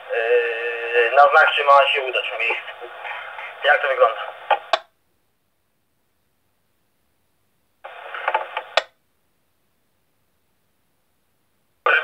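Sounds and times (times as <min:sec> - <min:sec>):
radio transmission crackle: 0:00.0 - 0:04.8, 0:07.8 - 0:08.8.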